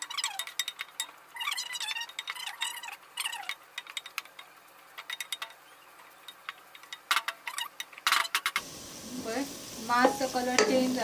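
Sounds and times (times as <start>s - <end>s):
wooden spoon scraping a pot: 0.0s - 8.6s
onions frying: 0.0s - 11.0s.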